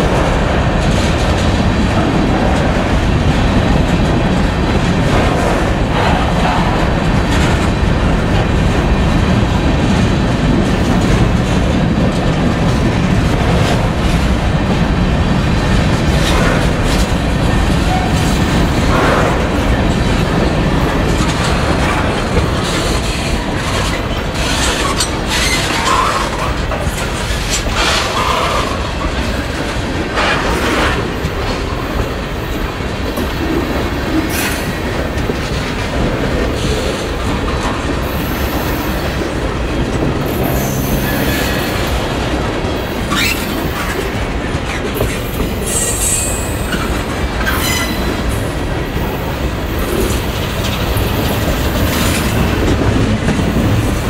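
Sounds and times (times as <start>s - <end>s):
train wheels clacking on rails: 0.0s - 54.0s
wheel squeals: 43.1s - 43.6s, 47.4s - 48.1s.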